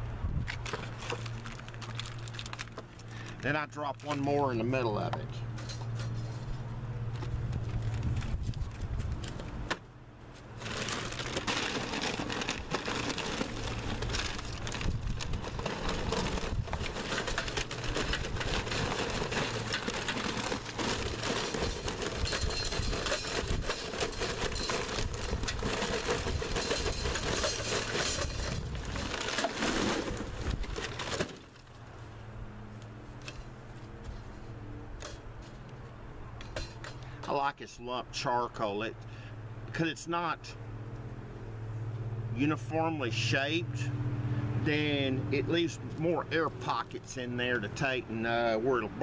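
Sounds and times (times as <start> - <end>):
paper rustling: 10.4 - 31.4
charcoal clattering into metal: 10.6 - 31.6, 36.4 - 37.0.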